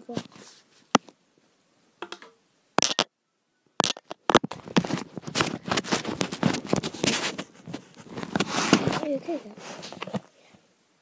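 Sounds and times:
crackling rustle on microphone: 0.0s - 1.2s, 3.8s - 10.6s.

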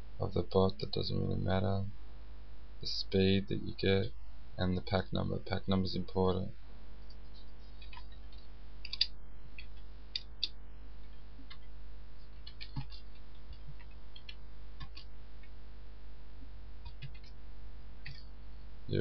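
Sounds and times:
steady low hum: 0.0s - 19.0s
keyboard typing clicks: 8.8s - 10.6s, 12.4s - 15.5s, 16.8s - 17.4s, 18.0s - 18.2s.

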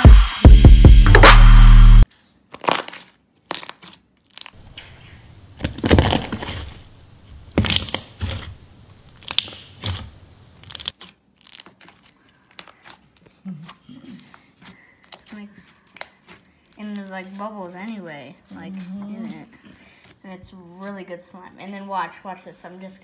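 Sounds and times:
slime squelching: 2.4s - 6.9s, 7.5s - 21.4s.

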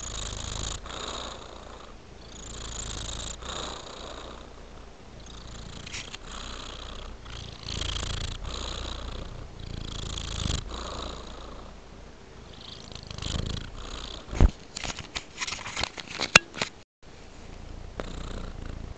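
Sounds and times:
cat purring: 0.0s - 14.6s, 17.4s - 18.9s.

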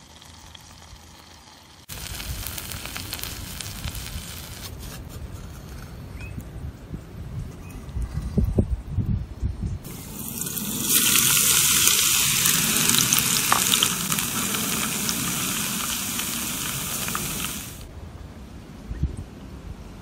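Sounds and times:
scallions sizzling in hot oil: 0.0s - 4.7s, 9.9s - 17.9s.

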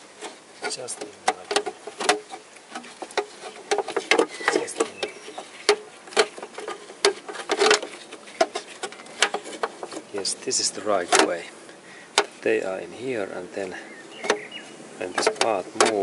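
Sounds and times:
metal parts clicking and scraping: 0.2s - 11.5s.

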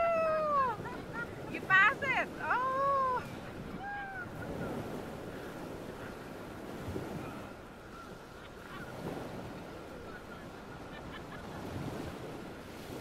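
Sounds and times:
river water rushing and splashing: 0.0s - 13.0s.

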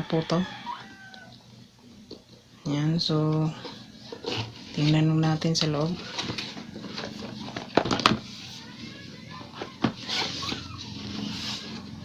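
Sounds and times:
cardboard and plastic rustling: 3.5s - 12.0s.

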